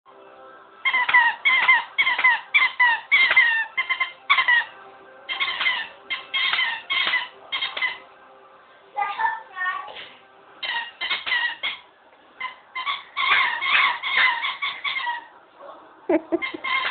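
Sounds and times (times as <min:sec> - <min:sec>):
dog toy squeaking: 0:00.8 - 0:04.7, 0:05.3 - 0:08.0, 0:10.6 - 0:11.8, 0:12.4 - 0:15.3, 0:16.4 - 0:16.9.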